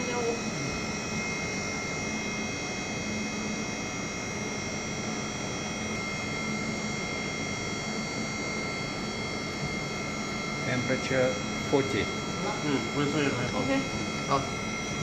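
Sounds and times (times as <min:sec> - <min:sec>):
low motor hum: 0:00.0 - 0:15.0.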